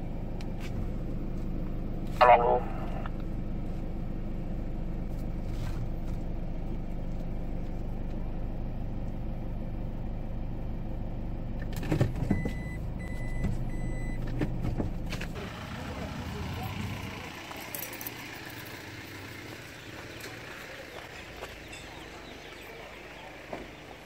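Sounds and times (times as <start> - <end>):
car engine idling: 0.0 - 11.8, 12.4 - 24.0
car warning chime beeping: 12.4 - 14.2.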